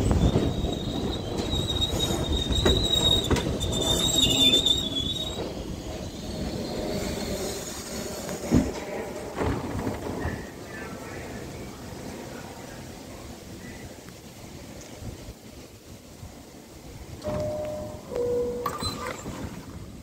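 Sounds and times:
high steady squeal: 0:00.0 - 0:08.6
wheels clicking over rail joints: 0:00.0 - 0:11.2, 0:17.1 - 0:20.0
subway train slowing: 0:00.0 - 0:20.0.

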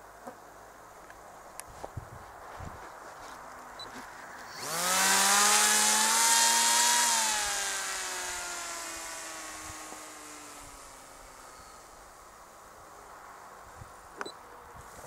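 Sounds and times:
model aircraft motor buzzing: 0:04.4 - 0:12.2.

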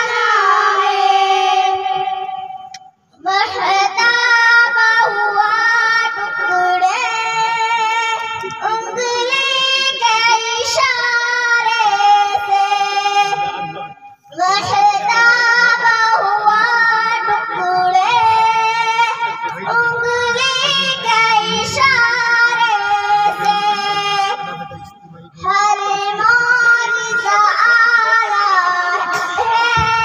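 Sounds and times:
girls singing through microphones: 0:00.0 - 0:02.6, 0:14.4 - 0:24.7, 0:25.4 - 0:30.0.

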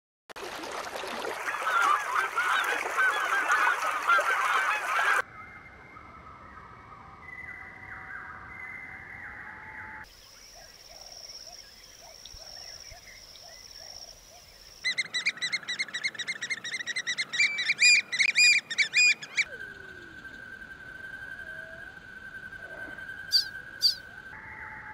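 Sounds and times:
whistled bird notes: 0:05.2 - 0:10.1, 0:14.8 - 0:24.9
chorus of bird calls: 0:07.2 - 0:24.9
rapid repeated bird calls: 0:10.1 - 0:20.4, 0:21.3 - 0:24.2.

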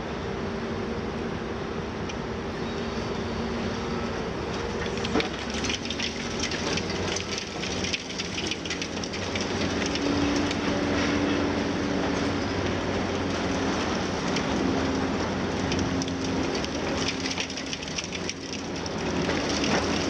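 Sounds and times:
diesel excavator engine running: 0:00.0 - 0:20.0
concrete debris breaking and falling: 0:04.9 - 0:10.4.

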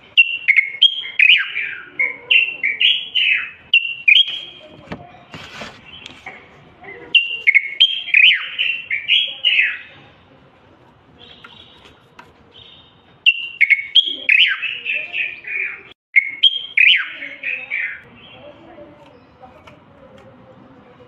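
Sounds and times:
bulbul singing whistled phrases: 0:00.0 - 0:04.8, 0:07.1 - 0:10.0, 0:11.2 - 0:12.0, 0:12.6 - 0:19.4.

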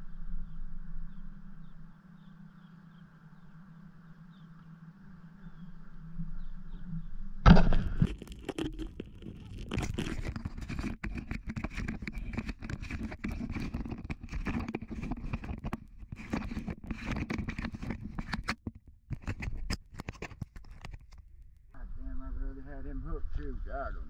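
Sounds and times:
clothing rubbing on camera: 0:07.8 - 0:21.2.

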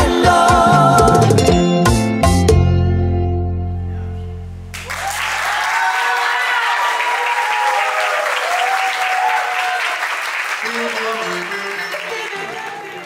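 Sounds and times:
bachata song: 0:00.0 - 0:05.9, 0:10.0 - 0:13.0
audience applause and cheering: 0:04.7 - 0:13.0
voices whooping: 0:04.8 - 0:10.0.

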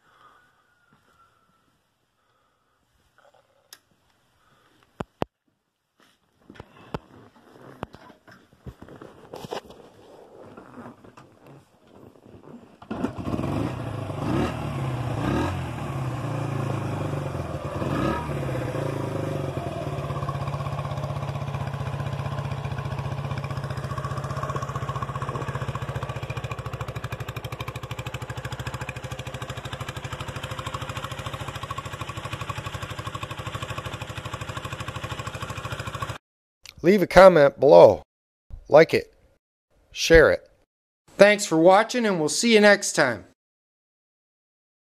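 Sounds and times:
motorcycle engine revving and idling: 0:12.3 - 0:36.2.

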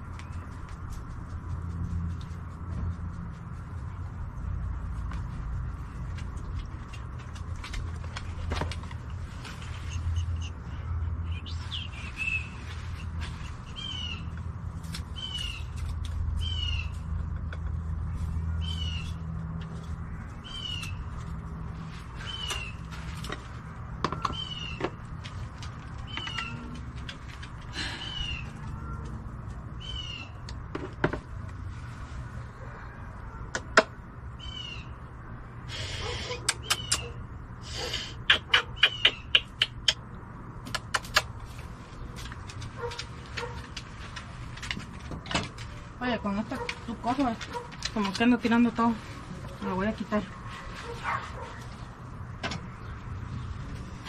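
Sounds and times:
animal chirping: 0:38.3 - 0:40.0.

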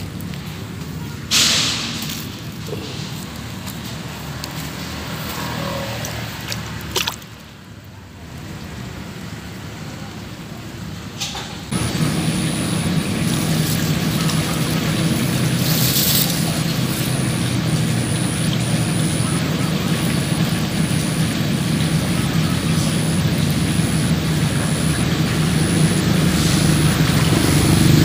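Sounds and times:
engine drone: 0:00.0 - 0:28.0
high-pitched whine: 0:11.8 - 0:28.0.

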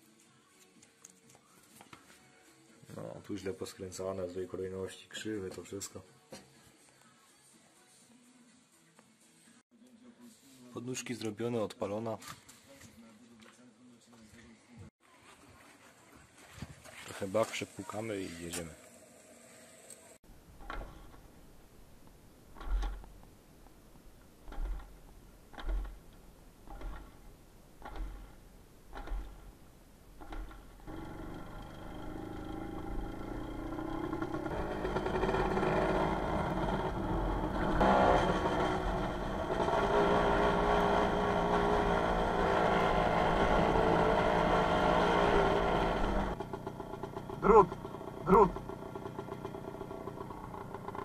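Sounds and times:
motorcycle kickstarter thumps: 0:24.5 - 0:26.0, 0:26.7 - 0:27.2, 0:27.8 - 0:29.4
engine turning over rattle: 0:26.7 - 0:27.2, 0:30.2 - 0:51.0.

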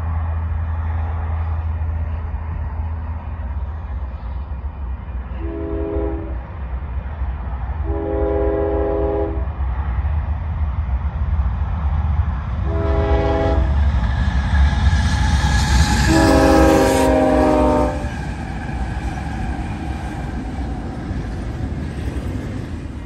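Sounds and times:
locomotive engines and wheels rumbling: 0:00.0 - 0:23.0
locomotive air horn: 0:05.4 - 0:06.4, 0:07.9 - 0:09.4, 0:12.7 - 0:13.8, 0:16.0 - 0:18.2.

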